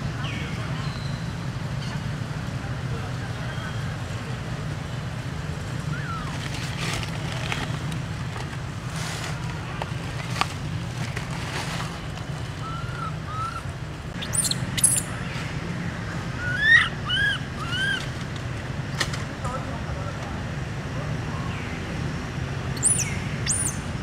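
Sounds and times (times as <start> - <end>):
baby monkey crying: 12.6 - 15.1, 16.4 - 18.1, 22.8 - 23.8.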